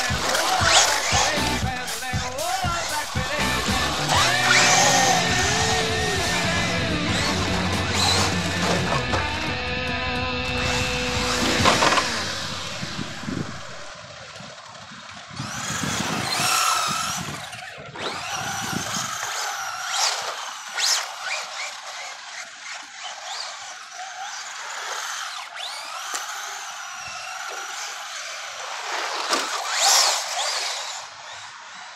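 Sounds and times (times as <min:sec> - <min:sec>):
tyres scrubbing on asphalt: 0:00.0 - 0:09.3, 0:18.1 - 0:31.7
electric motors whining: 0:00.0 - 0:31.9.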